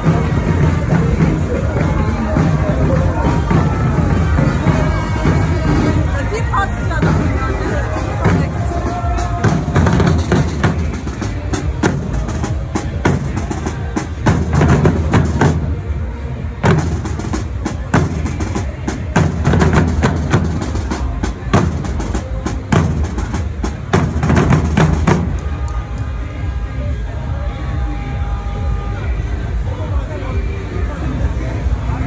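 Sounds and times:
drummers playing marching rhythm: 0.0s - 16.0s, 16.6s - 26.0s.

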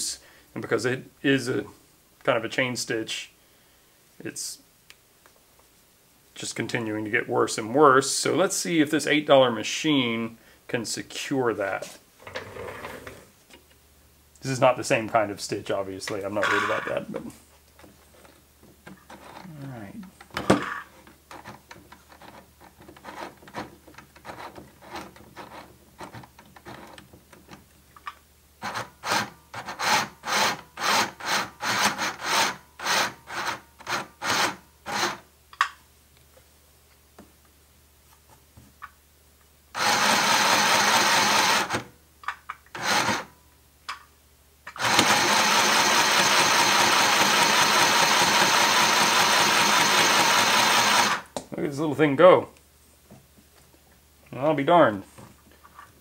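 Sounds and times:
sewing machine stitching: 12.2s - 13.3s, 39.8s - 41.8s, 42.8s - 43.3s, 44.8s - 51.3s.

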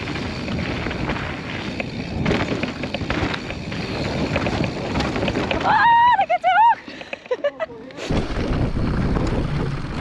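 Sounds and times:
small rattles and knocks: 0.0s - 5.9s
bike rolling on dirt trail: 0.0s - 10.0s.

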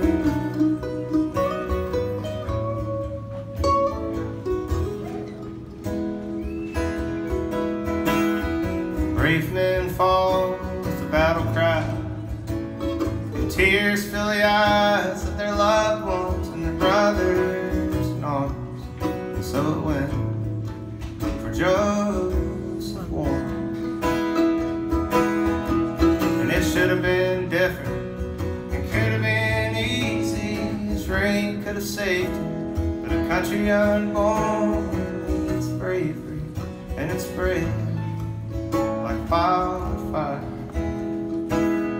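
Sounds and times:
acoustic guitar strumming: 0.0s - 41.9s
mandolin notes: 0.0s - 41.9s
person singing: 13.4s - 20.5s.

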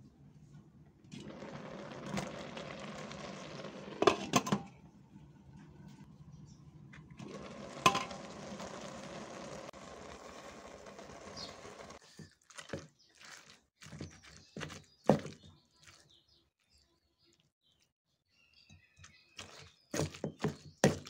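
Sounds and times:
glass pot lid clinking: 7.8s - 8.4s.

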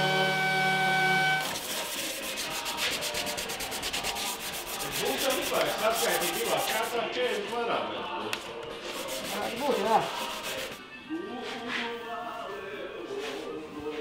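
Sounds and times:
rapid scraping strokes: 1.4s - 7.5s, 8.7s - 10.8s.

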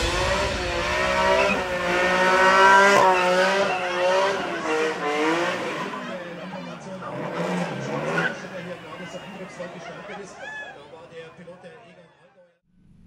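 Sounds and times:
car engine revving: 0.0s - 9.6s
tyres squealing: 7.1s - 10.8s.

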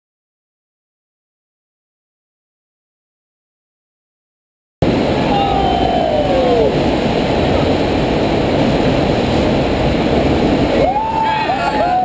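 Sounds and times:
loud rush of water: 4.8s - 12.0s.

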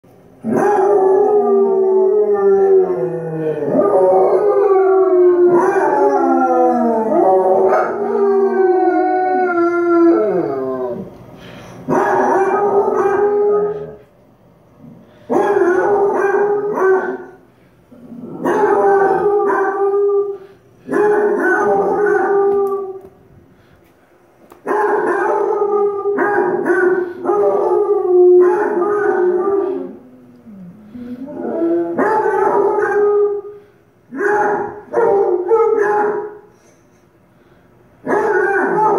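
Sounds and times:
dogs howling from tv speaker: 0.4s - 11.1s, 11.9s - 14.1s, 15.3s - 17.4s, 18.0s - 23.2s, 24.6s - 33.6s, 34.2s - 36.5s, 38.0s - 38.9s
dog howling along: 0.5s - 11.1s, 18.3s - 23.0s.

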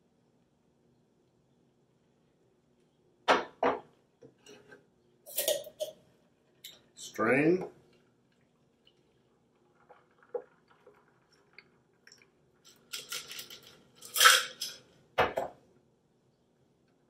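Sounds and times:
liquid pouring over ice: 8.0s - 14.4s
ice rattling in metal shaker: 12.6s - 14.8s.

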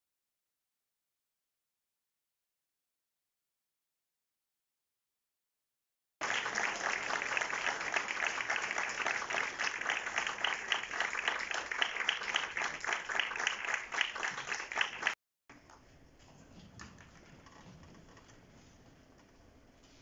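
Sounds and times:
audience applauding: 6.2s - 15.2s.

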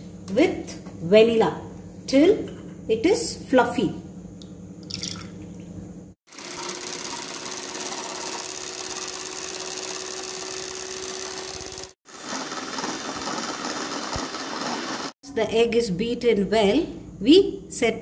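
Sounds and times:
electric hand mixer whirring: 6.3s - 15.2s.

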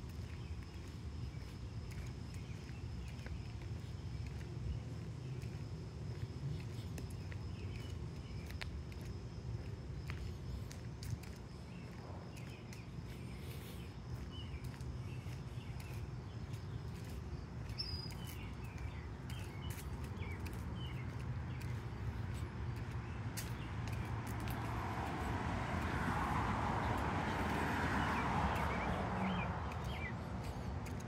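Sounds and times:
small birds chirping: 0.1s - 26.0s, 26.8s - 31.0s
car driving by: 23.6s - 31.0s.

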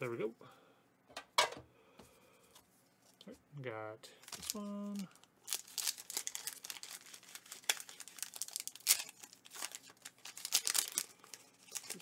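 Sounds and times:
foil wrapper crinkling and tearing: 4.2s - 12.0s.

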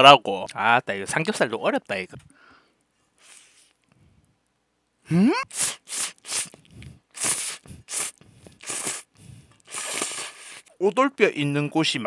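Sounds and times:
noodles being slurped: 5.4s - 10.7s.

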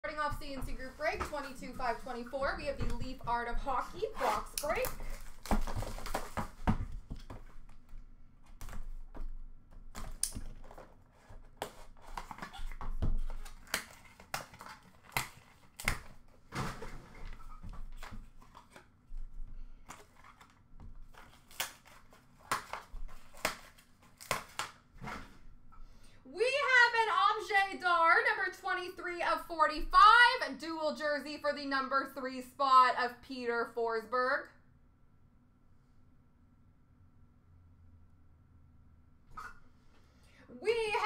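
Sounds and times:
wrapping crinkling and tearing: 4.0s - 6.5s, 10.0s - 16.4s, 19.8s - 24.8s.

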